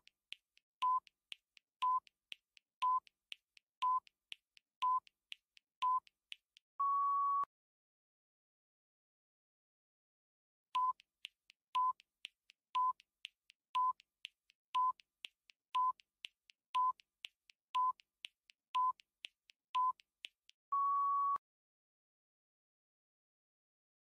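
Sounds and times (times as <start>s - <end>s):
faint ticks: 10.8s - 20.6s
short electronic beeps: 20.7s - 21.4s.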